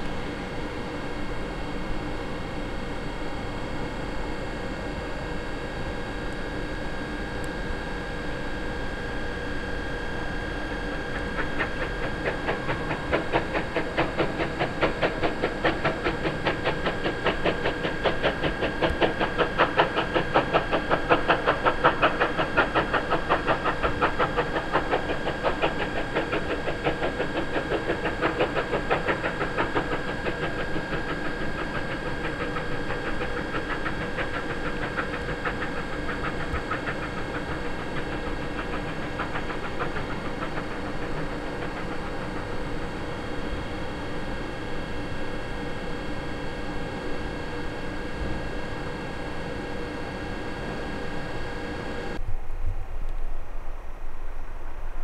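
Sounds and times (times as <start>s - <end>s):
steam locomotive exhaust beats: 0.0s - 52.9s
steam hissing: 10.2s - 44.0s.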